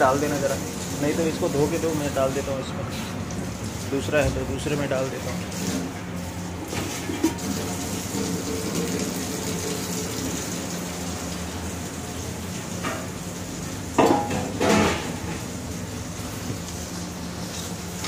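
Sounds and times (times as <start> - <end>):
steady background hum: 0.0 - 18.0
metal pots clattering: 6.7 - 7.5, 14.0 - 15.5.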